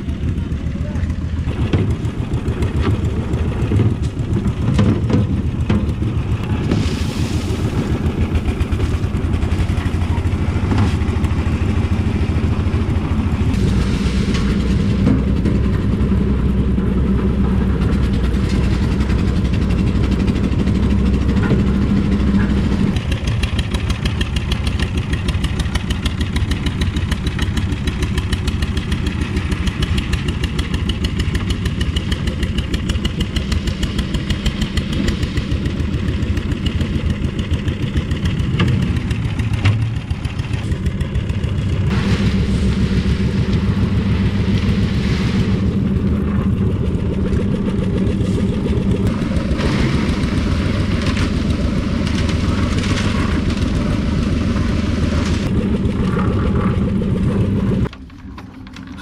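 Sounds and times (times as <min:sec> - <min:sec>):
concrete mixer engine rumble and rattle: 0:00.0 - 0:59.0.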